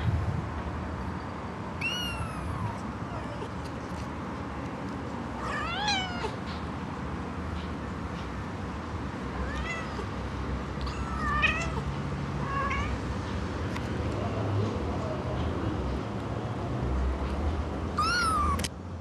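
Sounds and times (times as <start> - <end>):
kitten meowing: 1.8 - 3.6, 5.4 - 6.4, 9.4 - 10.1, 10.8 - 13.0, 18.0 - 18.7.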